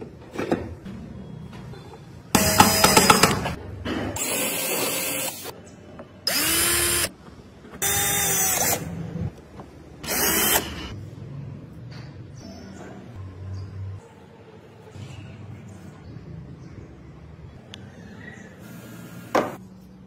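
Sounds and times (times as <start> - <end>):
cordless drill spinning: 6.3 - 7.1, 10.0 - 10.9.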